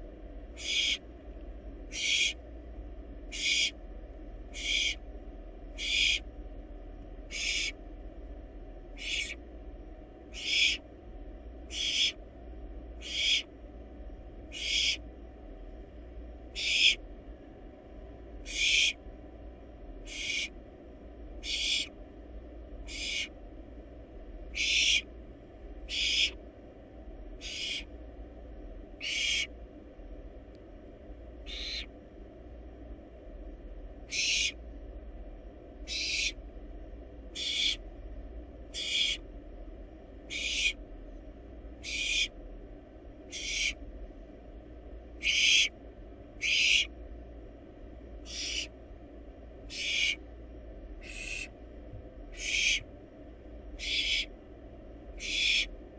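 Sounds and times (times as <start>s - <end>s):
owl nestling hissing begging calls: 0.6s - 1.0s, 1.9s - 2.4s, 3.3s - 3.8s, 4.5s - 5.0s, 5.8s - 6.2s, 7.3s - 7.8s, 9.0s - 9.4s, 10.3s - 10.8s, 11.7s - 12.2s, 13.0s - 13.5s, 14.5s - 15.0s, 16.6s - 17.0s, 18.4s - 19.0s, 20.0s - 20.5s, 21.4s - 21.9s, 22.9s - 23.3s, 24.5s - 25.1s, 25.9s - 26.4s, 27.4s - 27.9s, 29.0s - 29.5s, 31.5s - 31.9s, 34.1s - 34.6s, 35.8s - 36.4s, 37.4s - 37.8s, 38.7s - 39.2s, 40.3s - 40.8s, 41.8s - 42.3s, 43.3s - 43.8s, 45.2s - 45.7s, 46.4s - 46.9s, 48.2s - 48.7s, 49.7s - 50.2s, 51.0s - 51.5s, 52.3s - 52.8s, 53.8s - 54.3s, 55.2s - 55.7s.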